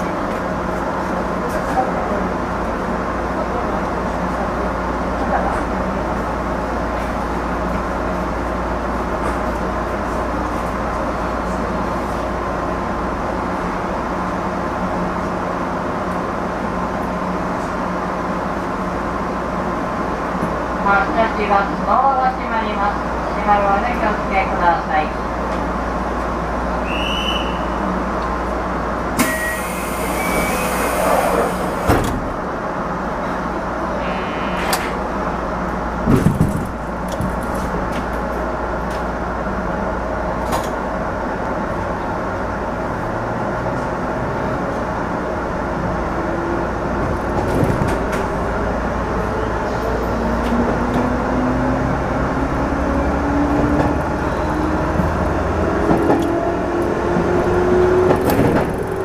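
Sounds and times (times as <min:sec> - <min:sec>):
train running noise: 0:00.0 - 0:59.0.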